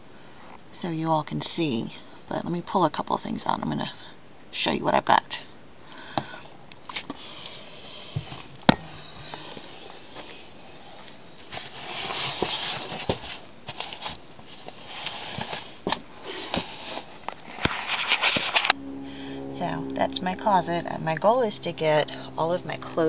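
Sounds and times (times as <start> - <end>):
cloth rustling and scraping: 6.8 - 18.8.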